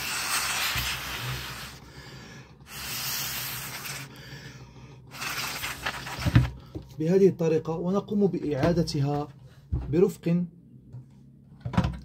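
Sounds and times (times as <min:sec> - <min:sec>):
tissue rubbing on plastic: 0:00.0 - 0:01.8, 0:02.7 - 0:04.1, 0:05.1 - 0:06.5.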